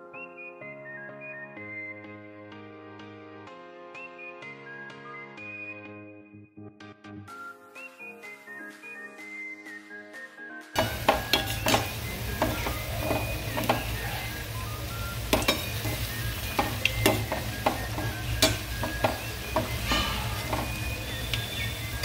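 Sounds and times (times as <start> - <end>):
fritters sizzling in hot oil: 10.8 - 22.0
slotted spoon scraping a pan: 15.3 - 21.5.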